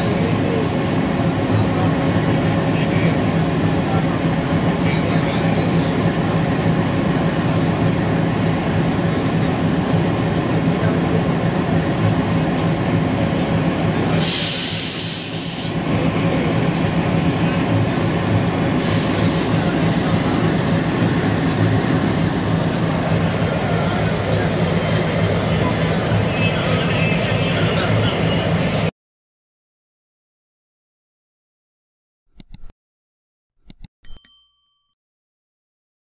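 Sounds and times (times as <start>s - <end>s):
diesel locomotive engine idling: 0.0s - 28.9s
compressed air hiss: 14.2s - 15.8s.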